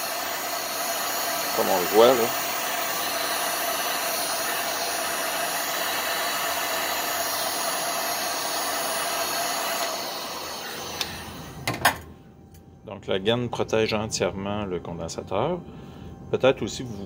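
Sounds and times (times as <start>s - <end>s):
heat gun blowing air: 0.0s - 11.7s.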